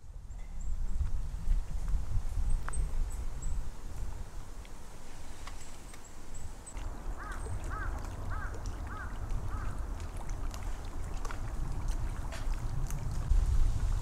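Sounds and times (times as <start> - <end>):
low rumble of wind: 0.0 - 14.0
water at lakeshore: 0.0 - 14.0
bird calling: 5.6 - 10.1.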